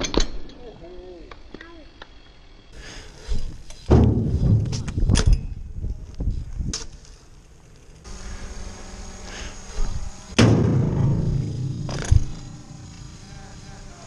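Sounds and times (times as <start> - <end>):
bike tyres hissing on wet asphalt: 2.7 - 4.6, 6.1 - 10.4, 11.0 - 14.0
bike rumbling and clanking: 3.3 - 8.1, 10.3 - 13.8.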